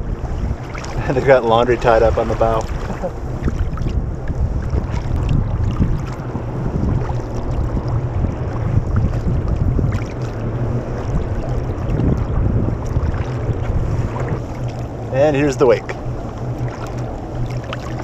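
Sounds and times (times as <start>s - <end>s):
water lapping against hull: 0.0s - 18.0s
wind buffeting microphone: 0.0s - 18.0s.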